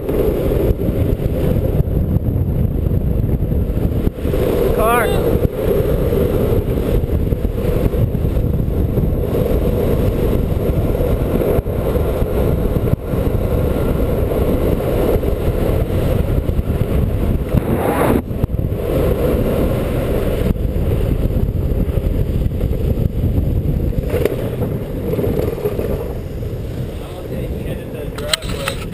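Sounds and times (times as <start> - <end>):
longboard wheels rolling on asphalt: 0.0 - 28.9.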